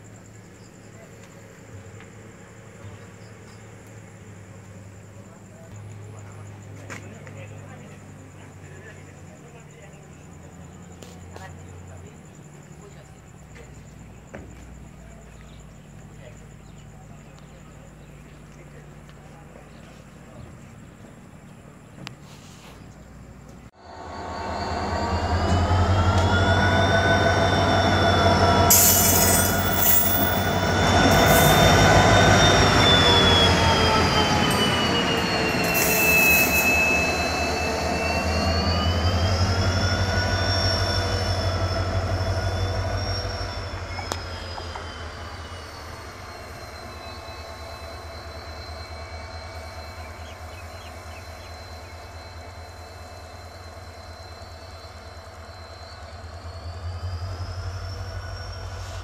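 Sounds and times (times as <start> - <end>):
diesel locomotive engine drone: 0.0 - 59.0
high wavering whining tones: 23.8 - 59.0.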